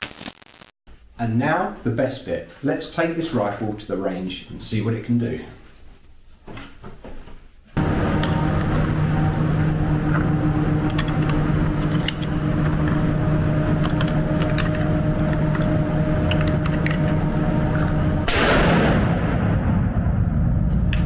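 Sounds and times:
steady mechanical hum: 1.0 - 18.9.

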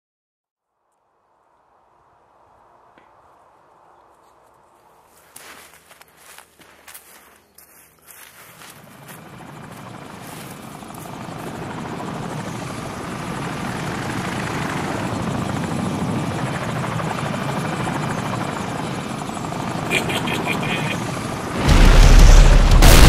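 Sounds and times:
helicopter rotors and engine: 5.8 - 23.0.

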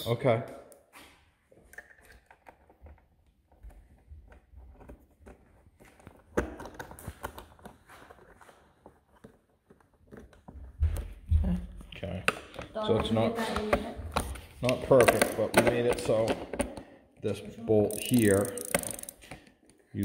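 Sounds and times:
metal parts clicking and tapping: 17.9 - 19.5.

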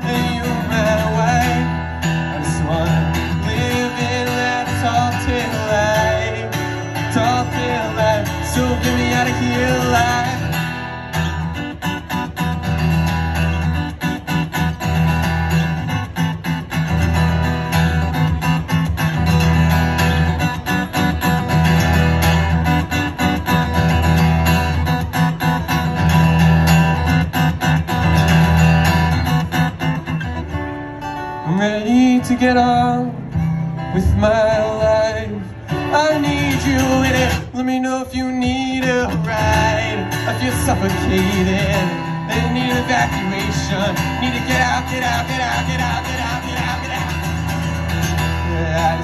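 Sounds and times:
man singing: 0.0 - 10.7, 31.4 - 49.0
acoustic guitar strumming: 0.0 - 49.0.

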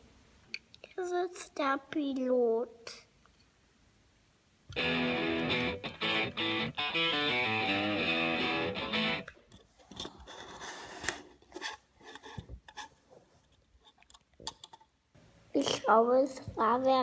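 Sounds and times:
guitar music: 4.7 - 9.3
plastic parts clicking on a table: 13.9 - 15.0.

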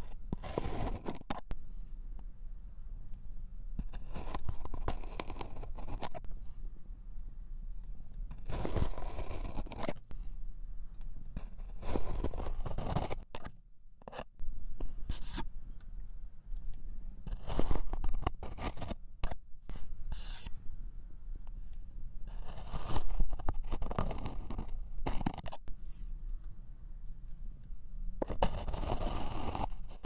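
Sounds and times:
plastic knife scraping sand: 0.0 - 1.4, 3.8 - 6.2, 8.4 - 10.0, 11.4 - 13.4, 17.3 - 20.5, 22.3 - 25.7, 28.2 - 30.0.

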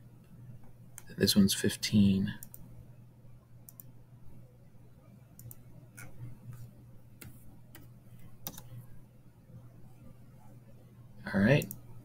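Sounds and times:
steady low hum: 0.0 - 12.0
computer mouse and keyboard clicks: 5.4 - 8.8.

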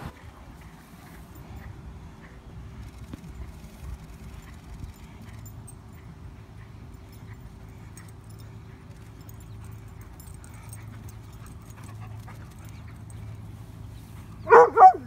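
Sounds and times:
low outdoor background: 0.0 - 15.0
dog barking: 14.4 - 15.0.

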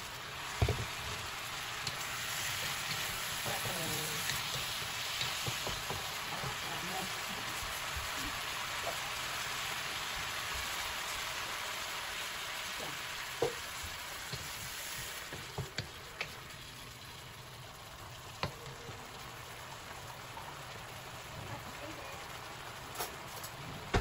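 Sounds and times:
vegetables sizzling in a wok: 0.0 - 24.0
spatula knocking on wok: 2.9 - 6.6.

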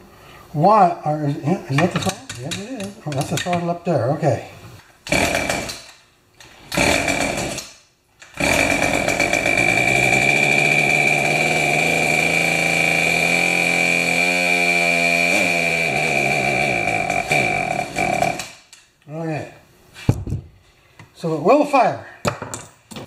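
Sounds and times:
chainsaw engine running: 5.1 - 5.7, 6.8 - 7.6, 8.4 - 18.5.

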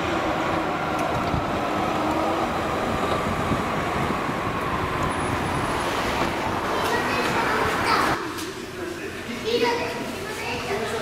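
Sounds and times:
electric train rumbling on track: 0.0 - 8.4.

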